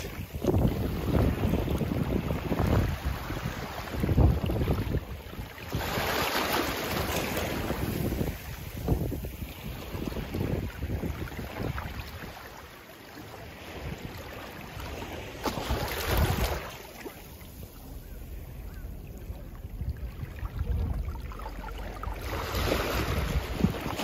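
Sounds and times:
wind buffeting microphone: 0:00.0 - 0:12.4, 0:17.8 - 0:24.0
waves washing over rocks: 0:00.0 - 0:12.6, 0:13.2 - 0:18.0, 0:19.7 - 0:24.0.

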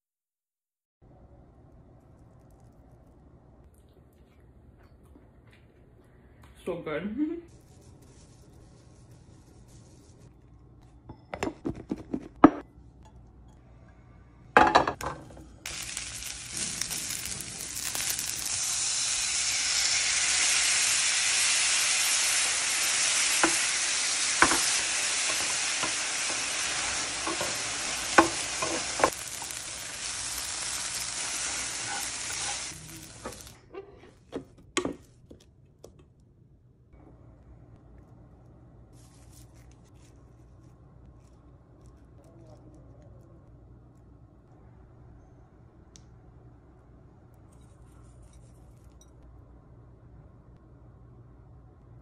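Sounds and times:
food sizzling in a pan: 0:15.6 - 0:33.6
food crackling as broken by hand: 0:15.7 - 0:18.6.

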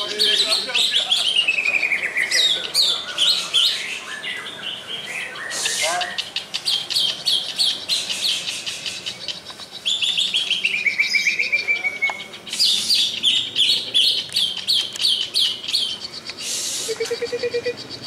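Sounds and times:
birds chirping: 0:00.0 - 0:18.0
short rushing hiss: 0:16.4 - 0:17.0.

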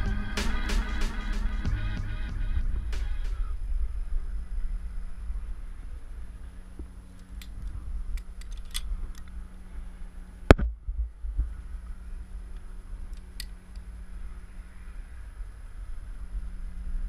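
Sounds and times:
low rumble: 0:00.0 - 0:13.1
carabiner clicking and clinking: 0:08.2 - 0:09.3.

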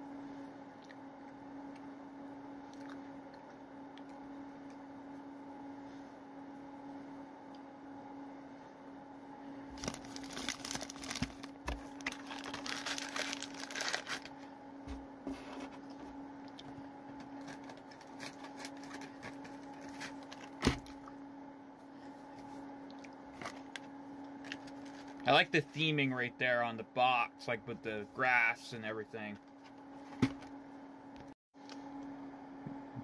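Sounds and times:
steady hum: 0:00.0 - 0:33.0
candy packaging crinkling: 0:09.7 - 0:14.5, 0:17.4 - 0:20.6, 0:24.4 - 0:25.2.

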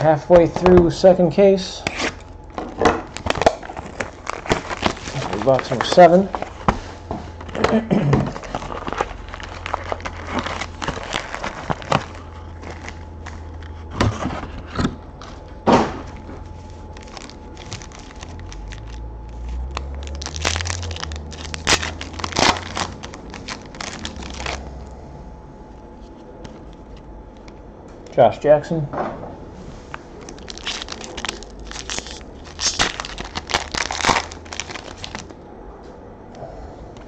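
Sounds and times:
foil and cardboard crinkling: 0:01.8 - 0:14.9, 0:16.0 - 0:24.7, 0:30.2 - 0:35.3.

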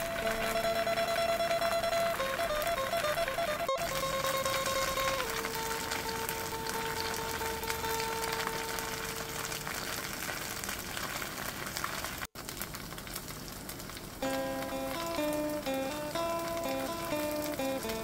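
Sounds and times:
held note of background music: 0:00.0 - 0:09.2
plucked guitar music: 0:00.0 - 0:09.2, 0:14.2 - 0:18.0
batter sizzling in a pan: 0:00.0 - 0:18.0.

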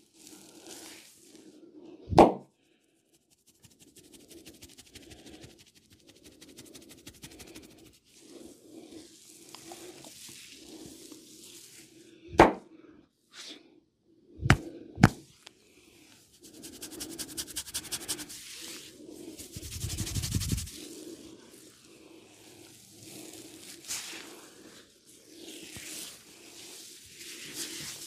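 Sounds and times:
fingers rubbing through hair: 0:03.1 - 0:08.2, 0:16.3 - 0:21.0.

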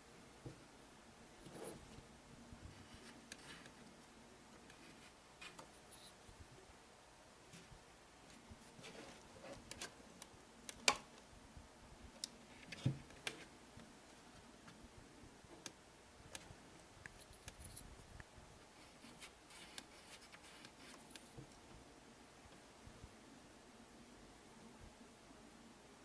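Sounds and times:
faint scratching on plastic: 0:01.4 - 0:02.0, 0:02.7 - 0:03.8, 0:04.6 - 0:06.2, 0:08.3 - 0:09.9, 0:18.8 - 0:21.6.

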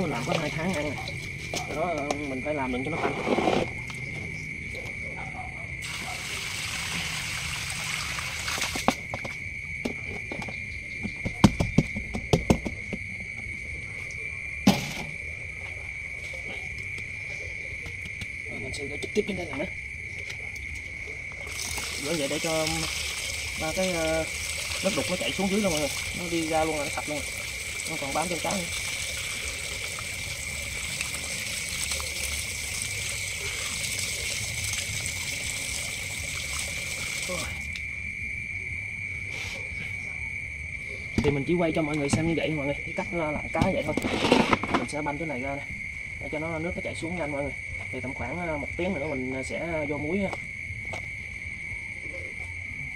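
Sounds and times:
water pouring through colander: 0:00.0 - 0:02.0, 0:05.8 - 0:08.9, 0:21.4 - 0:37.8
crickets chirring: 0:00.0 - 0:52.9
high insect trill: 0:00.0 - 0:52.9.

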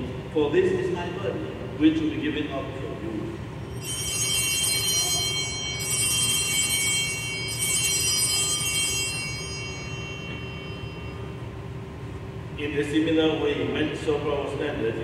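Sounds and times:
altar bells ringing: 0:03.6 - 0:12.6.

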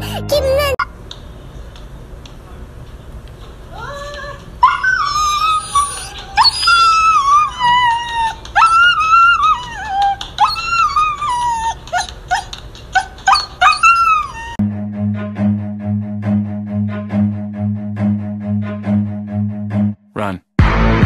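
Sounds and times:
dog yelping: 0:04.6 - 0:14.6
husky whining and howling: 0:04.6 - 0:14.6.

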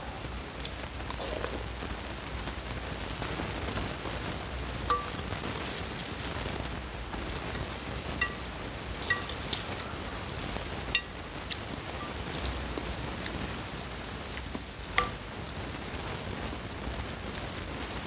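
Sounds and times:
steady hiss: 0:00.0 - 0:18.0
cutlery clinking against bowl: 0:04.9 - 0:05.3, 0:08.2 - 0:10.0, 0:15.0 - 0:15.2.

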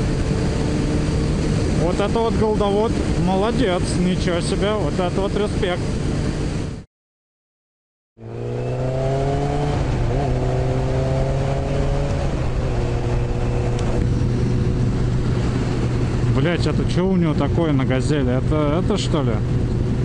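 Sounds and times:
motorcycle engine running: 0:00.0 - 0:03.8
wind rushing: 0:08.4 - 0:18.0.

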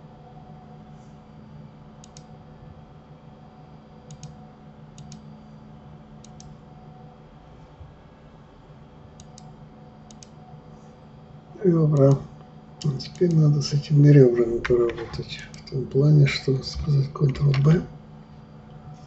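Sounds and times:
low room hum: 0:00.0 - 0:19.0
computer mouse clicking: 0:02.0 - 0:02.3, 0:04.1 - 0:04.4, 0:05.0 - 0:05.2, 0:06.2 - 0:06.6, 0:09.2 - 0:10.4, 0:12.8 - 0:13.4.

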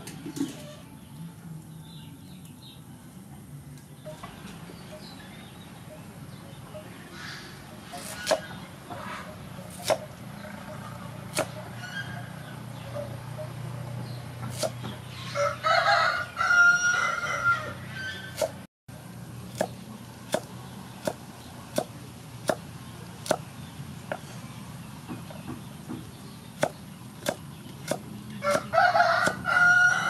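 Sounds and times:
knife chopping on wooden board: 0:09.7 - 0:10.1, 0:11.3 - 0:11.6, 0:14.5 - 0:15.0, 0:19.6 - 0:22.6, 0:25.1 - 0:29.4
rooster crowing: 0:15.2 - 0:18.3, 0:28.4 - 0:30.0.

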